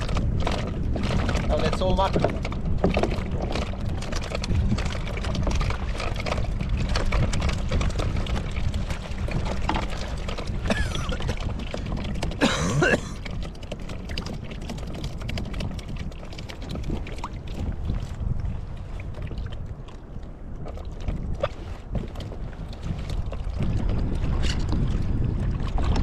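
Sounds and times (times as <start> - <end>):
fishing tackle clicks and rattles: 0.0 - 12.4
water slapping around kayak: 0.0 - 26.0
wind buffeting microphone: 0.0 - 26.0.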